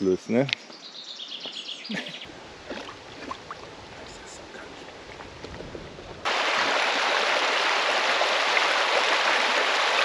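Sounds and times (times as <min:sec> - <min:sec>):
river water rushing over gravel: 0:06.3 - 0:10.0.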